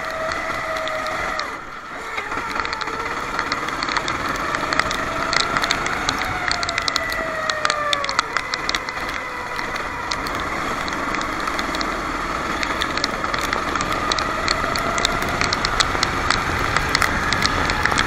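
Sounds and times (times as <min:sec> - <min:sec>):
kart engine running: 0:00.0 - 0:18.0
sharp clicks: 0:00.0 - 0:18.0.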